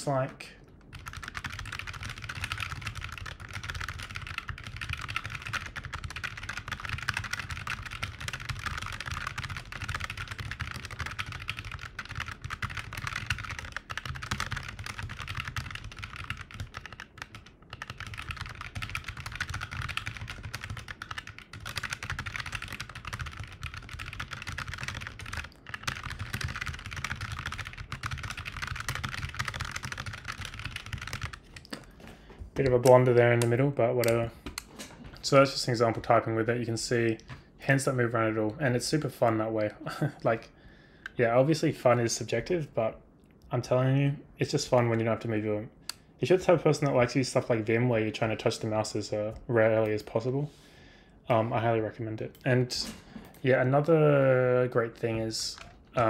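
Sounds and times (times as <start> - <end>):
fast keyboard typing clicks: 0.9 - 31.8.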